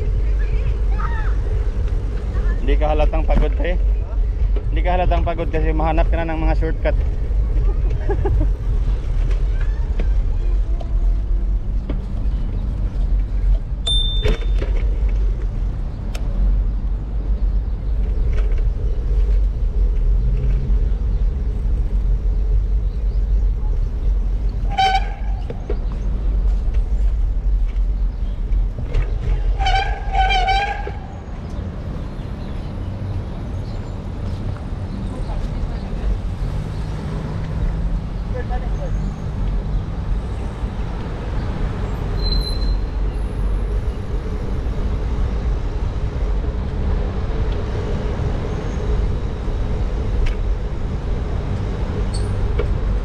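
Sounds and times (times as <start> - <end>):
city traffic noise: 0.0 - 53.0
wind rumbling on microphone: 0.0 - 53.0
high squeak: 42.2 - 42.9.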